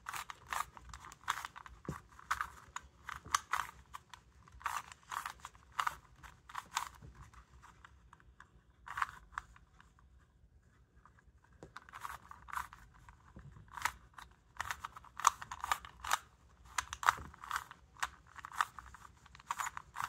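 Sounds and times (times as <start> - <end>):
puzzle cube clicking: 0.0 - 7.8, 11.8 - 20.0.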